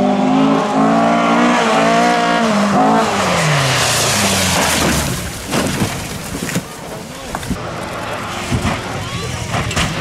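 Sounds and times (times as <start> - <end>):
rally car engine revving: 0.0 - 10.0.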